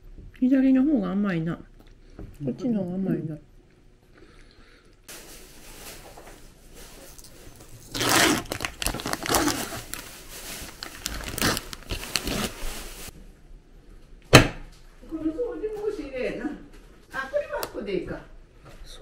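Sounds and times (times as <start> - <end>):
packaging crinkling and tearing: 5.1 - 13.1.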